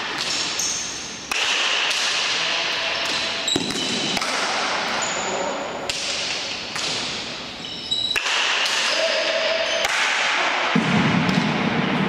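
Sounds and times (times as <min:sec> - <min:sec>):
shoe squeaks on court floor: 0:00.2 - 0:01.2, 0:03.4 - 0:04.2, 0:04.9 - 0:05.5, 0:07.5 - 0:08.2.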